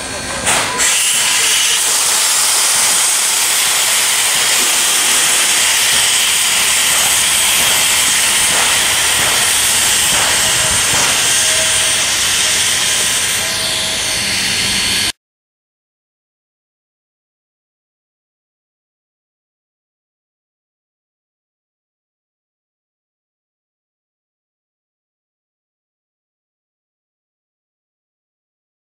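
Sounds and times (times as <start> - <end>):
steam locomotive hissing: 0.0 - 15.1.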